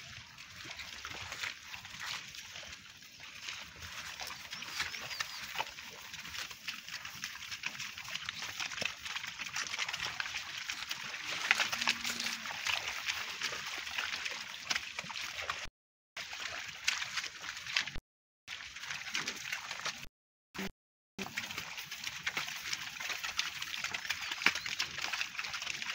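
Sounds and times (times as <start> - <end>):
footsteps through wet grass: 0.1 - 18.0.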